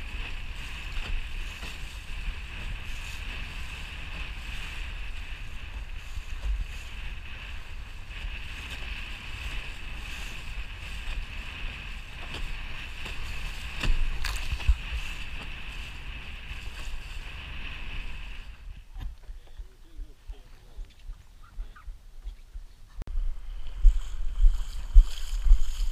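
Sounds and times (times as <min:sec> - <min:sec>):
water rushing along hull: 0:00.0 - 0:19.5
wind rumble on microphone: 0:00.0 - 0:25.9.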